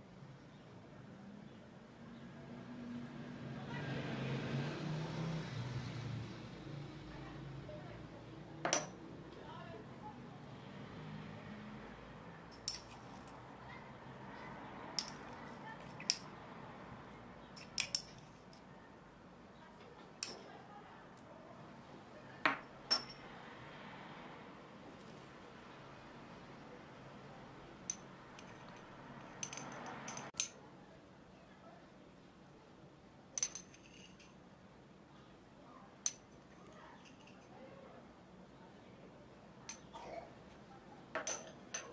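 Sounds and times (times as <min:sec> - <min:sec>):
glass clinks: 0:08.6 - 0:09.0, 0:22.5 - 0:23.3, 0:41.2 - 0:41.9.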